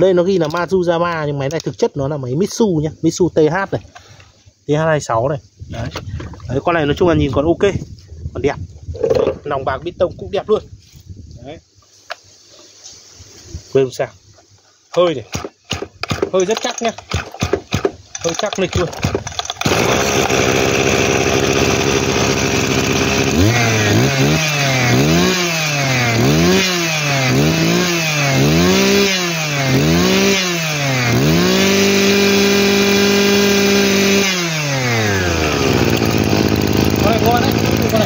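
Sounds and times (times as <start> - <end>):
brush cutter engine revving: 15.3 - 38.0.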